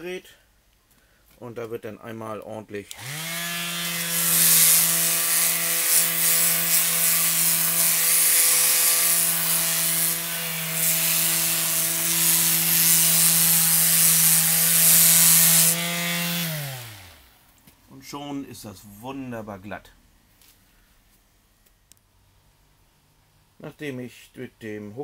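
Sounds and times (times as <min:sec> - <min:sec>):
sander rasping on mortar: 0:03.0 - 0:17.3.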